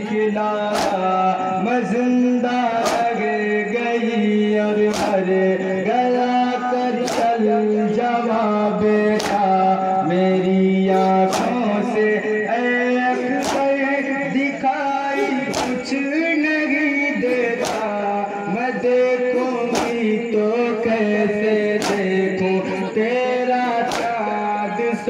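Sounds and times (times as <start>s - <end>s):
men singing a lament in unison: 0.0s - 25.0s
collective chest-beating: 0.5s - 1.4s, 2.7s - 3.6s, 4.3s - 7.7s, 10.7s - 24.6s.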